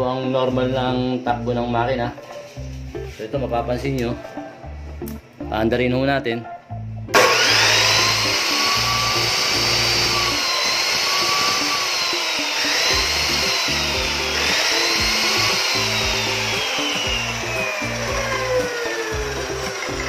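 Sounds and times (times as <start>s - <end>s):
chop saw motor whine: 7.1s - 20.0s.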